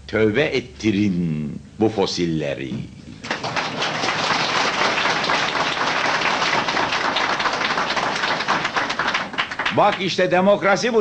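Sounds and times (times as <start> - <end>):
audience applauding: 3.2 - 10.3.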